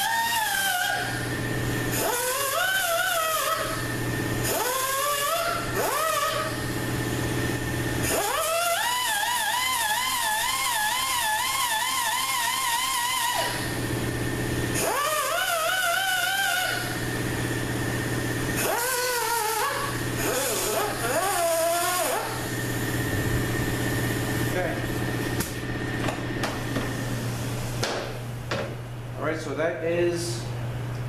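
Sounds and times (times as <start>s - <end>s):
die grinder grinding steel: 0.0s - 1.2s, 1.9s - 3.9s, 4.5s - 6.6s, 7.9s - 13.7s, 14.7s - 17.0s, 18.5s - 23.1s.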